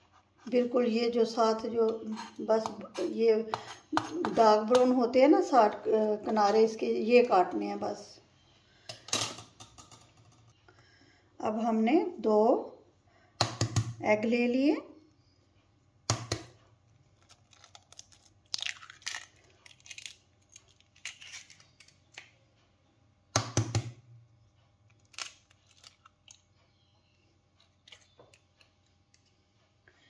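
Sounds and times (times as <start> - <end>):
egg shell cracking: 17.2 - 22.3, 24.9 - 26.4
shell crackling: 24.9 - 26.4.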